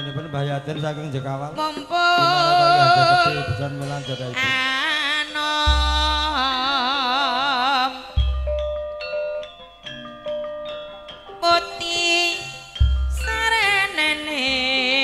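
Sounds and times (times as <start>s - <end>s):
gamelan music: 0.0s - 15.0s
person singing long notes: 1.6s - 8.2s.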